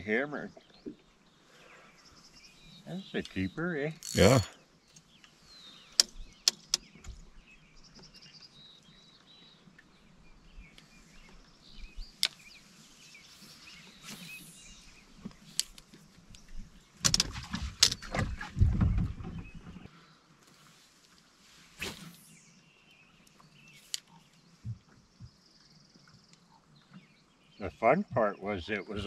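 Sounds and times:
knocks and clicks in a boat: 17.0 - 19.8, 24.6 - 25.4.

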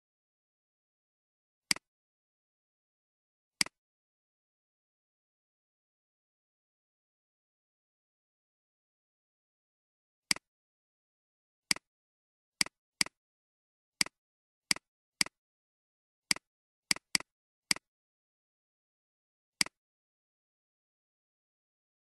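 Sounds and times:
computer mouse clicks: 16.3 - 17.9, 19.6 - 19.8.

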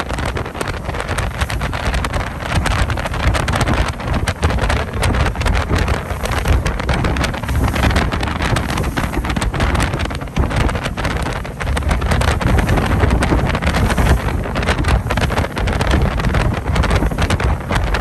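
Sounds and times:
boat engine rumble: 0.0 - 18.0
water rushing past hull: 0.0 - 18.0
wind buffeting microphone: 0.0 - 18.0.

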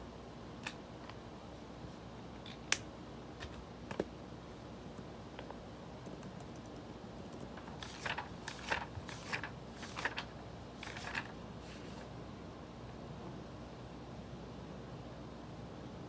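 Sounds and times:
notebook pages flipping: 7.4 - 12.1.

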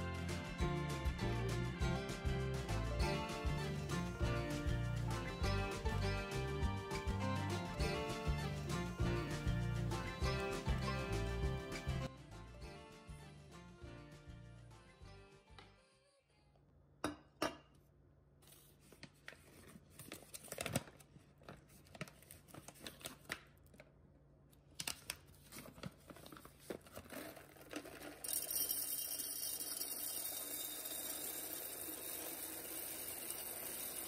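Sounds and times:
paper bag crinkling: 24.8 - 28.3
coffee beans pouring into jar: 27.1 - 34.0.

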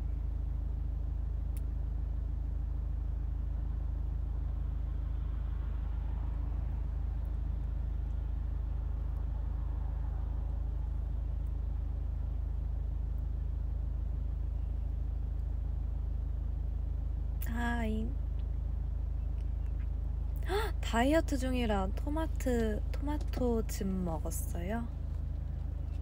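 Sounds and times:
car interior engine and road noise: 0.0 - 26.0
woman short voiced sound: 20.4 - 21.0.

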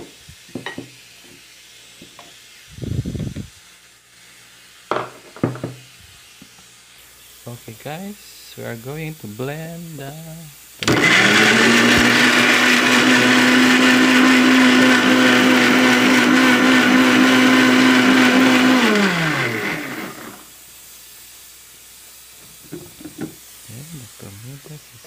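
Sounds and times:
electric blender motor running: 10.8 - 20.5.

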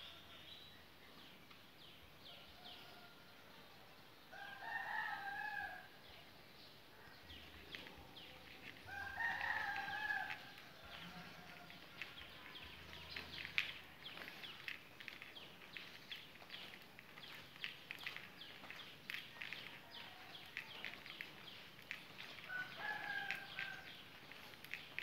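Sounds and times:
rooster crowing: 8.9 - 11.8, 22.5 - 24.0.

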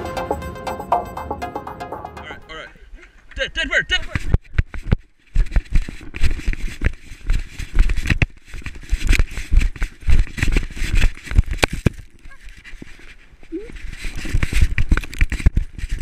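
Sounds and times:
camera jostling on harness: 4.7 - 16.0.

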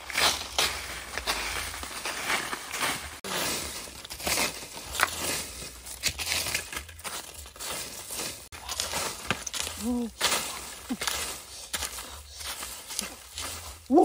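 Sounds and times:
dry leaves crunching and rustling: 0.0 - 14.0.

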